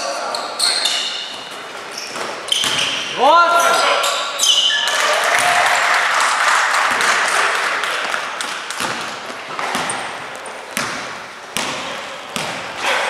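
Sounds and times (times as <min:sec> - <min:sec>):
crowd noise in sports hall: 0:00.0 - 0:13.0
shoe squeak: 0:00.2 - 0:05.0.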